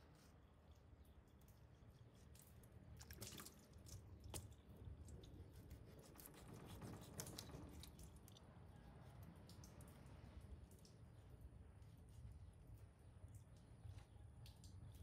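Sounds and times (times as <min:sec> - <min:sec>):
wet squishing of fish: 0:00.3 - 0:08.5.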